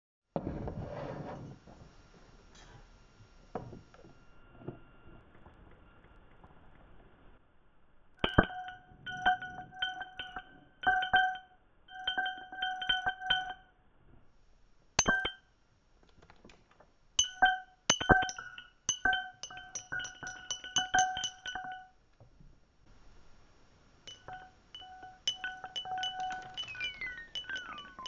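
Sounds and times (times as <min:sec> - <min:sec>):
glassy ringing processed clicks: 0:08.2 - 0:13.7, 0:15.0 - 0:15.4, 0:17.2 - 0:22.0, 0:24.1 - 0:28.0.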